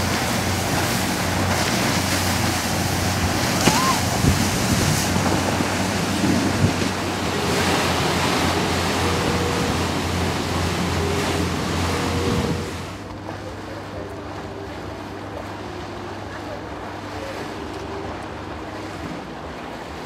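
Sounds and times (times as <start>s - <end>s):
wind buffeting microphone: 0.0s - 9.8s
churned wake water rushing: 0.0s - 20.0s
low engine hum: 0.0s - 20.0s.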